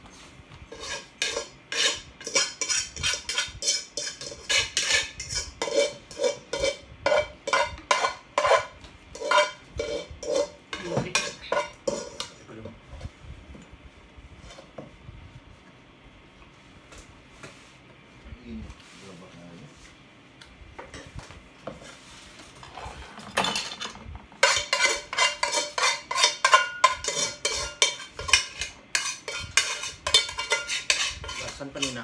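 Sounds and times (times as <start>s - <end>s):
cutlery scraping a dish: 0.7s - 12.4s, 22.6s - 32.0s.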